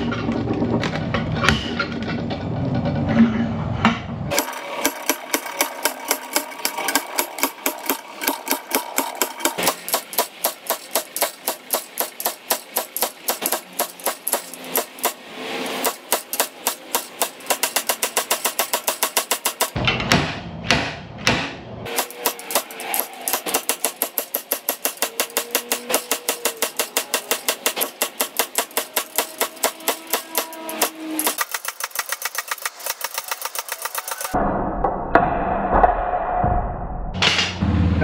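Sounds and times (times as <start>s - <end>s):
slide hammer metal strikes: 4.3s - 34.4s.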